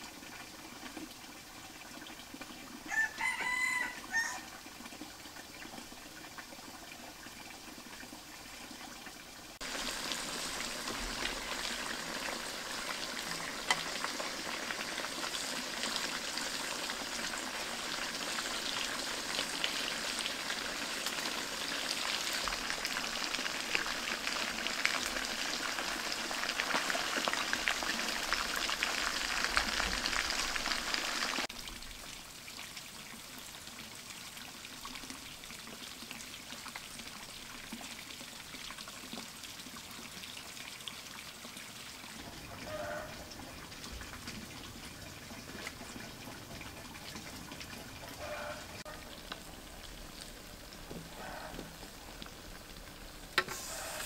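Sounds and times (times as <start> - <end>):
fish sizzling in hot oil: 0.0 - 8.4, 9.3 - 31.6, 47.3 - 54.0.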